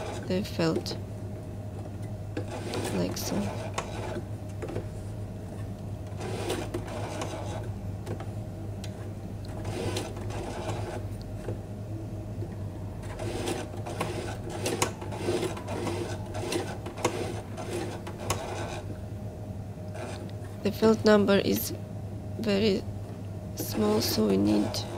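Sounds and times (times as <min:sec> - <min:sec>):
sewing machine motor hum: 0:00.0 - 0:01.0, 0:01.9 - 0:04.8, 0:06.0 - 0:08.2, 0:08.9 - 0:11.6, 0:13.0 - 0:18.9, 0:19.9 - 0:20.6, 0:23.6 - 0:24.9.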